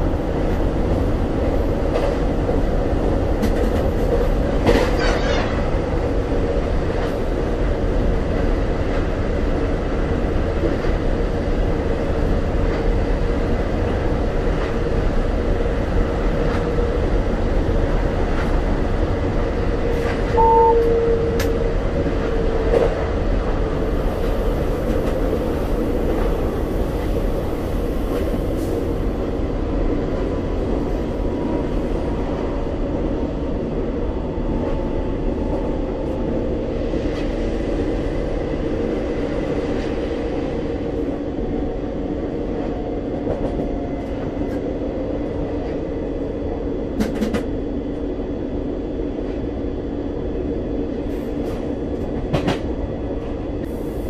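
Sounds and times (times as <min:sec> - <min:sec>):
train rumble and rolling noise: 0:00.0 - 0:54.0
brief loud tone: 0:20.3 - 0:21.5
constant whine: 0:20.3 - 0:27.2
faint tone dropping in pitch: 0:20.4 - 0:21.6.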